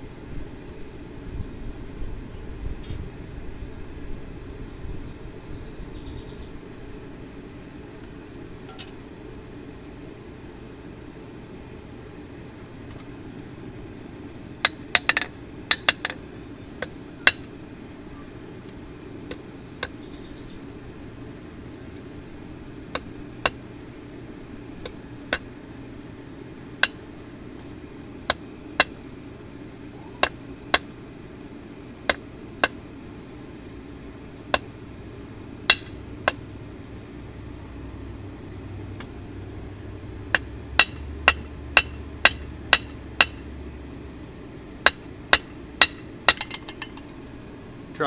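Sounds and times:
steady low hum: 0:00.0 - 0:48.0
hammer striking steel on anvil: 0:35.7 - 0:36.4, 0:40.3 - 0:43.5, 0:44.8 - 0:47.0.

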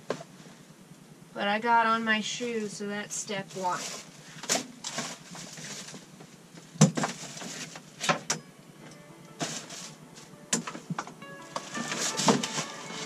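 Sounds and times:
quiet music: 0:07.9 - 0:13.0.

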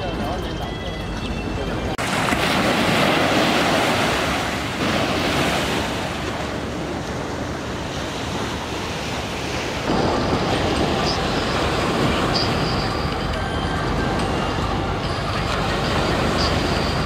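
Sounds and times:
wind on microphone: 0:01.0 - 0:17.0
small waves washing on sand: 0:02.0 - 0:13.2.

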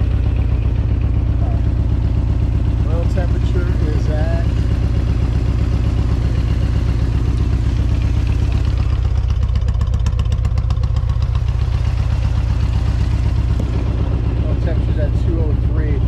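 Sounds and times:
motorcycle engine idling: 0:00.0 - 0:16.0.

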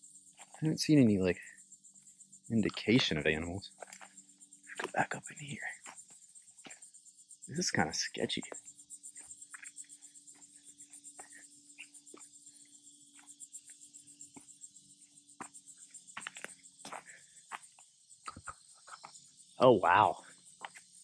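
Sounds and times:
insect chorus: 0:00.0 - 0:21.0
footsteps on pine needles and twigs: 0:03.8 - 0:04.1, 0:04.7 - 0:05.0, 0:16.2 - 0:17.8.

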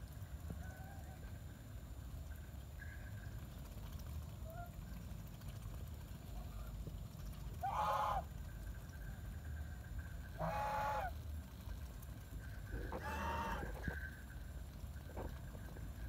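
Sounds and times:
steady low rumble: 0:00.0 - 0:16.0
geese calling: 0:07.6 - 0:08.3, 0:10.3 - 0:11.2, 0:12.8 - 0:14.2.

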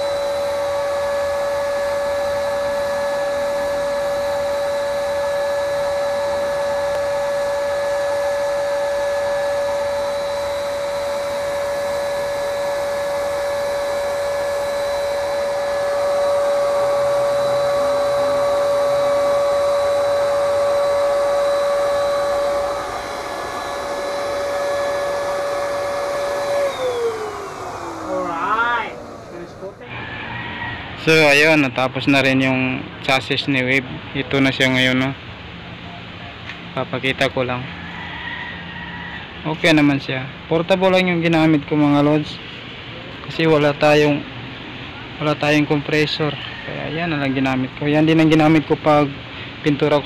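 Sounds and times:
electric spray gun motor whine: 0:00.0 - 0:30.3
motor spinning down: 0:00.0 - 0:31.5.

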